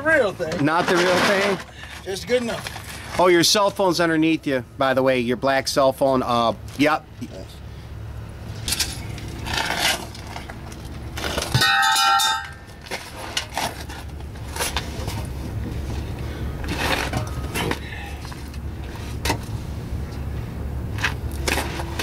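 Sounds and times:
steady low hum: 1.5s - 22.0s
metal clinks and scrapes: 8.6s - 15.3s
loud ringing metallic clang: 11.5s - 12.7s.

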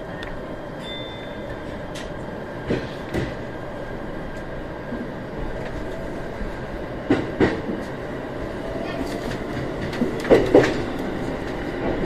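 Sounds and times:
train running rumble: 0.0s - 12.0s
wheels clacking over rail joints: 8.8s - 12.0s.

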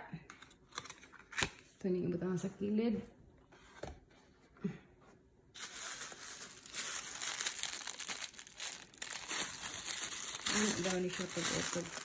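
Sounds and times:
tissue paper crinkling: 5.6s - 12.0s.

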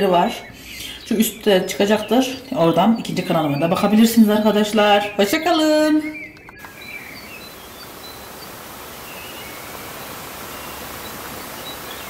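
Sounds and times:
faint high chirps: 6.3s - 12.0s
steady background hiss: 6.6s - 12.0s.

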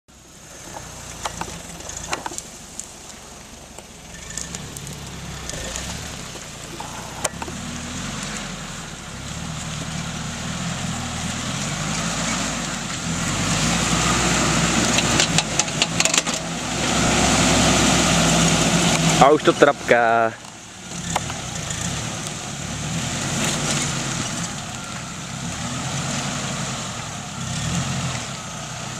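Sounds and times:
sharp cracks of cv joints: 0.6s - 7.6s, 14.8s - 16.5s, 20.4s - 22.3s
engine revving under load: 4.0s - 28.9s.

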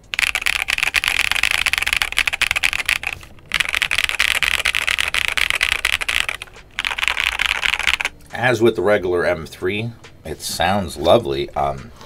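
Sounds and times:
mechanical keyboard typing: 0.0s - 8.1s.

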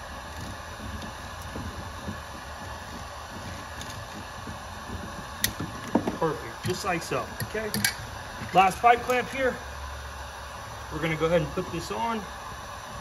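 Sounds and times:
steady background hum: 0.0s - 13.0s
hands rustling and knocking plumbing: 0.3s - 7.6s.

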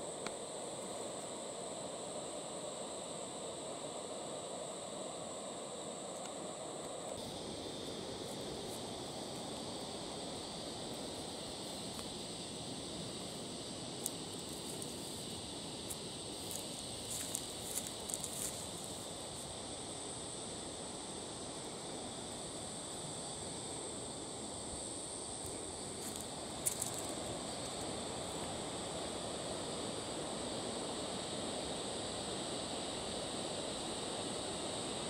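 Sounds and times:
high insect drone: 0.0s - 35.0s
bare footsteps on sand and rock: 15.8s - 18.7s.

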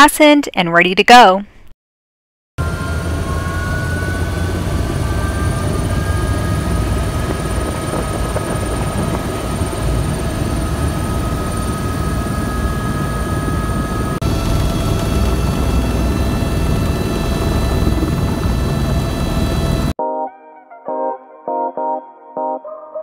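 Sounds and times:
helicopter running inside cabin: 2.6s - 20.0s.

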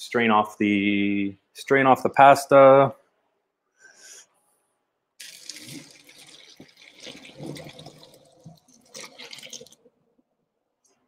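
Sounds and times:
water splashing into colander: 5.2s - 9.9s.

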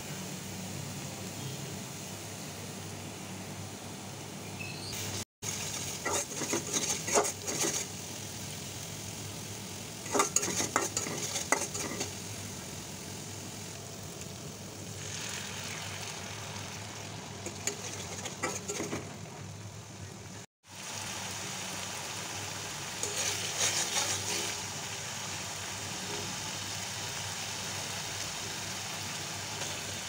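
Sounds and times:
oil sizzling: 0.0s - 30.0s
metal spatula scraping wok: 5.7s - 8.0s, 10.0s - 12.3s, 17.4s - 19.4s, 23.0s - 24.7s.

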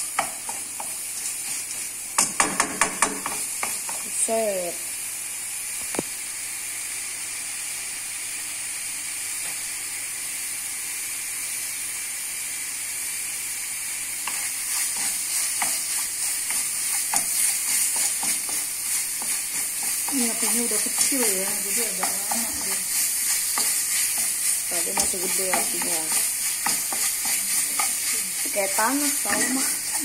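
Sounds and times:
paste sizzling in hot oil: 0.0s - 30.0s
wooden spatula scraping wok: 0.1s - 4.4s, 14.2s - 30.0s.

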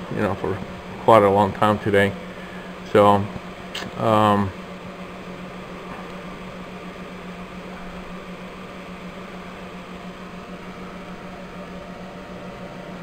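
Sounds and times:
constant low hum: 0.0s - 13.0s
cooling fans whirring: 0.0s - 13.0s.

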